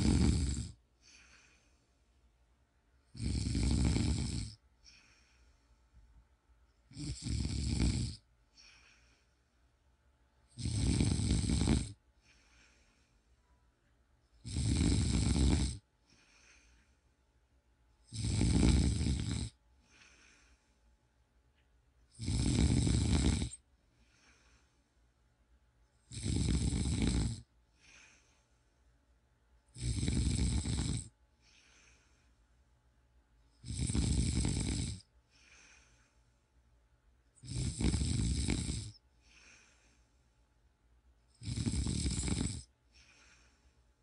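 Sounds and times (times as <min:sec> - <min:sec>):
man snoring: 0:00.0 - 0:01.6, 0:03.1 - 0:05.2, 0:06.9 - 0:09.0, 0:10.5 - 0:12.0, 0:14.4 - 0:15.8, 0:18.1 - 0:20.5, 0:22.1 - 0:23.6, 0:26.1 - 0:28.2, 0:29.7 - 0:32.0, 0:33.6 - 0:35.9, 0:37.4 - 0:39.8, 0:41.3 - 0:43.5.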